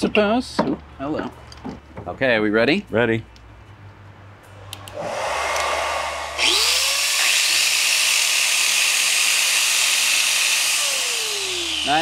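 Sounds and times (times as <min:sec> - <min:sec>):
angle grinders spinning: 0:04.9 - 0:12.0.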